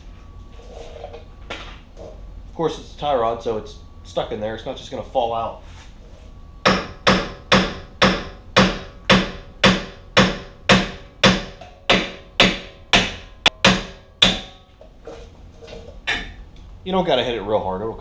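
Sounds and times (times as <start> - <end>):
hammer striking metal: 6.6 - 14.7, 16.1 - 16.4.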